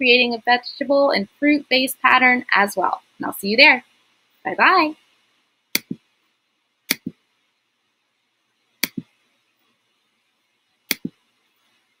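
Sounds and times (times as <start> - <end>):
computer mouse double clicks: 5.8 - 6.0, 6.9 - 7.2, 10.9 - 11.1.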